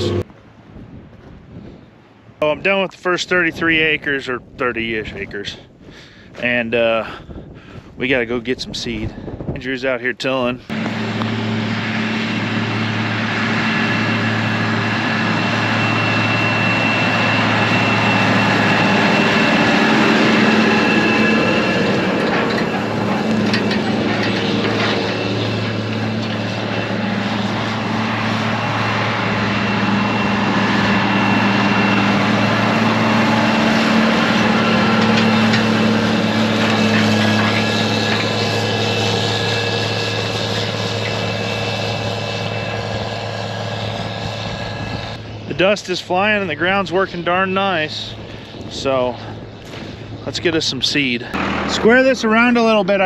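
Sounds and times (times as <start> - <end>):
tractor diesel engine under load: 0.0 - 0.3, 10.2 - 53.0
implement clanking and rattling: 10.7 - 45.6, 46.2 - 53.0.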